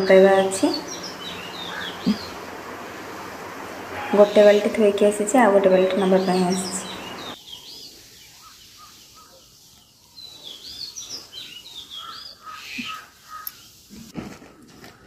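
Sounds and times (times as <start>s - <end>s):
faint low bird notes: 0.0s - 7.4s
birds chirping: 0.0s - 13.9s.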